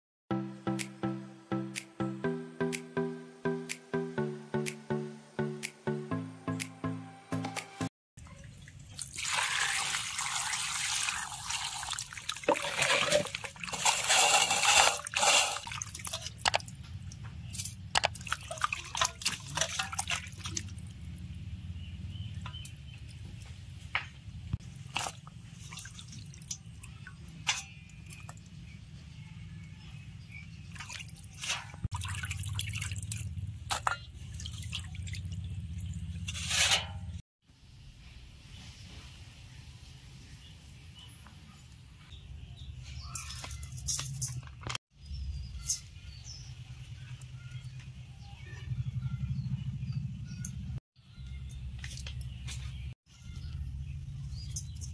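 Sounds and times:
water sloshing and splashing: 8.4 - 21.2, 24.6 - 28.4, 30.6 - 36.8
water dripping: 15.7 - 21.3, 25.0 - 28.5, 30.7 - 36.0.

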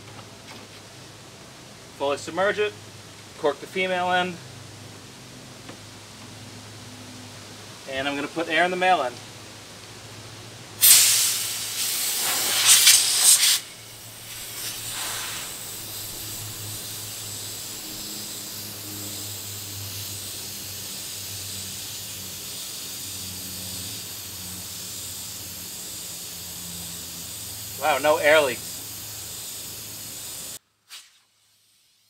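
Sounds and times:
compressed air hissing: 10.8 - 32.0.

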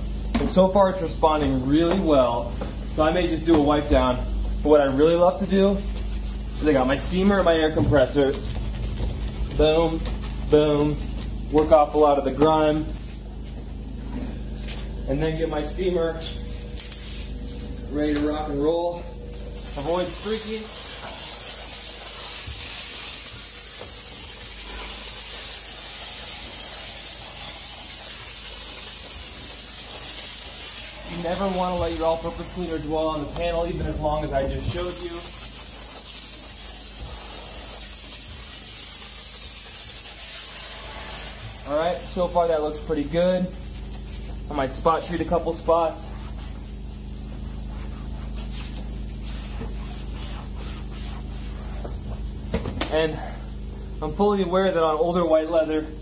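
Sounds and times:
low machine hum: 0.0 - 22.1, 30.8 - 37.9, 40.6 - 56.0
steam nozzle hissing: 0.0 - 56.0.

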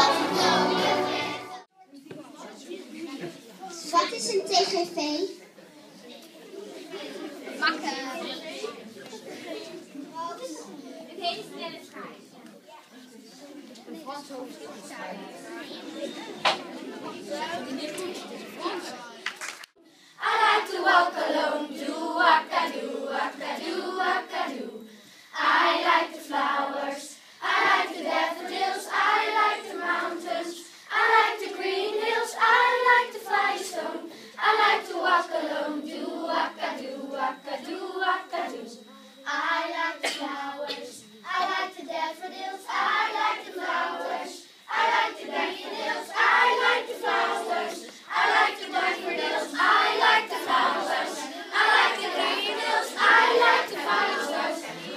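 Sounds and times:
children's choir singing: 0.0 - 1.7, 6.3 - 12.0, 13.0 - 54.9.

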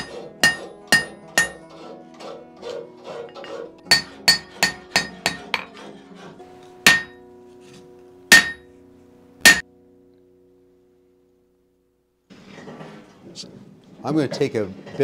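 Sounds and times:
hammer striking metal on anvil: 0.0 - 1.7, 3.4 - 5.7, 6.8 - 7.2, 8.3 - 8.7, 9.4 - 9.6.

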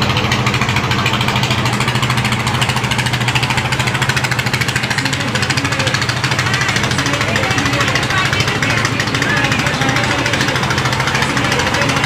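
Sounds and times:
motorboat engine chugging: 0.0 - 12.0.

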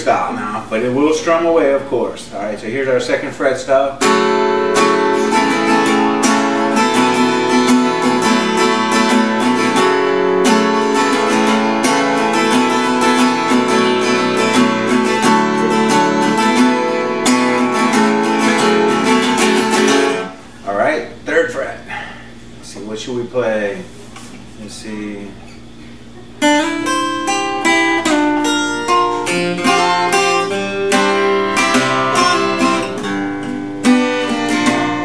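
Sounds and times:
acoustic guitar strummed: 3.0 - 20.6, 25.5 - 35.0.

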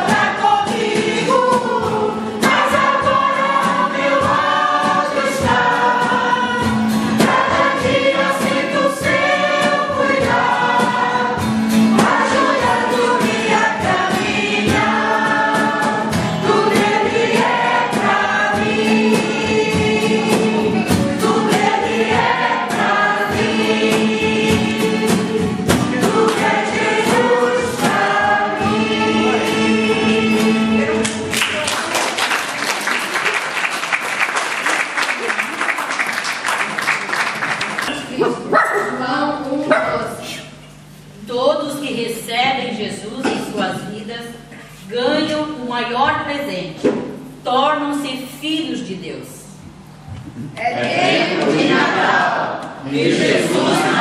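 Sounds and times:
strummed acoustic guitar: 0.0 - 31.3
choir singing a hymn: 0.0 - 31.6, 50.6 - 54.0.

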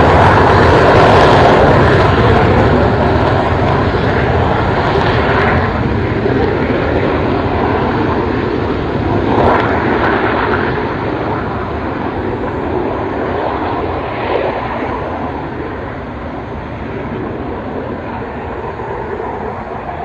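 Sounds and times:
jet engine roar: 0.0 - 20.0.

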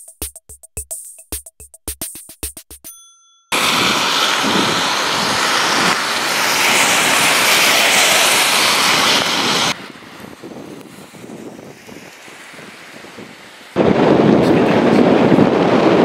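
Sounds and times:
wind: 3.5 - 16.0
rain: 3.6 - 10.2, 10.8 - 16.0
tyres spraying on wet road: 3.6 - 16.0.

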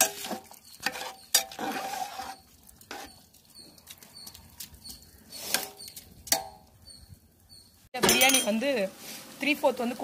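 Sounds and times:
ladle scraping and clanging pot: 0.0 - 4.4.

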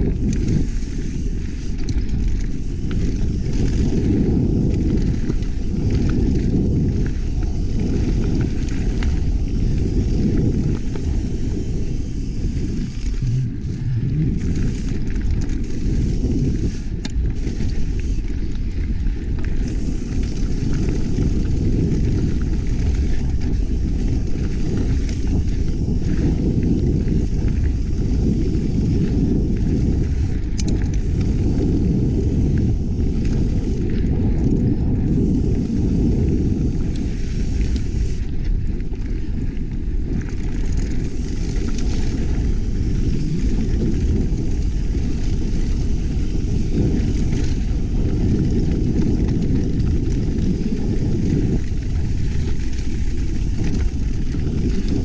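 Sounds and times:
small rattles and clicks: 0.0 - 55.0
wind rushing on microphone: 0.0 - 55.0
tyre rumble: 2.1 - 18.1.

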